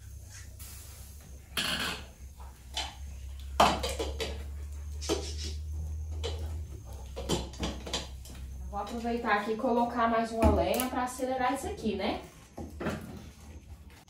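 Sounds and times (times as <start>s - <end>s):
steady low hum: 0.0s - 14.0s
metal pots and pans clanking: 1.6s - 2.2s.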